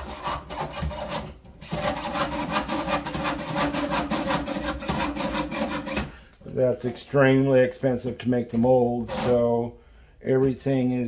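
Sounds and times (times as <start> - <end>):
saw blade rasping through sheet metal: 0.0 - 6.2, 9.0 - 9.6.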